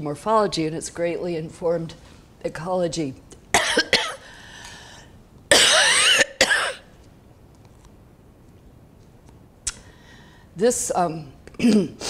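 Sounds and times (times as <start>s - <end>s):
person coughing: 3.6s - 4.3s, 5.5s - 6.9s, 11.6s - 12.0s.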